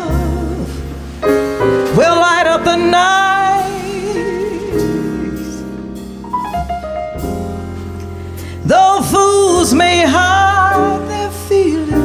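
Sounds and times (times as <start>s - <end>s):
woman singing: 0.0s - 0.9s, 1.9s - 5.5s, 8.6s - 12.0s
piano chords: 0.0s - 12.0s.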